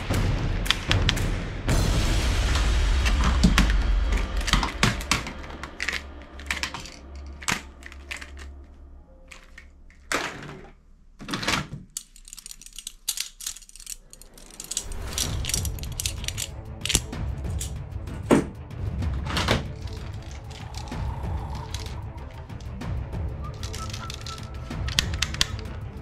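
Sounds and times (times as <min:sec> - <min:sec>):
plastic toy guns clattering: 0:04.2 - 0:08.6, 0:09.3 - 0:17.8, 0:19.4 - 0:22.0, 0:23.6 - 0:25.7.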